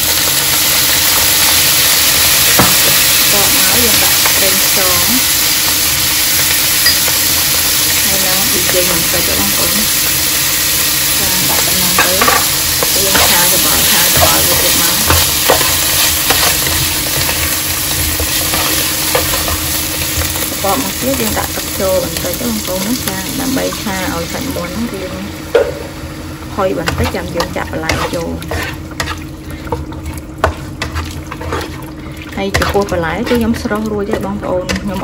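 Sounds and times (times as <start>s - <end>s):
food sizzling in a wok: 0.0s - 32.6s
spatula stirring and scraping: 11.3s - 21.4s, 26.8s - 35.0s.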